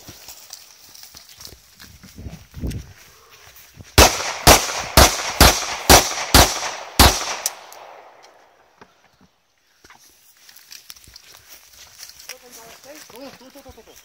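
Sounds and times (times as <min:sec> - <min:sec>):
pistol shots with echo: 0:04.0 - 0:08.5.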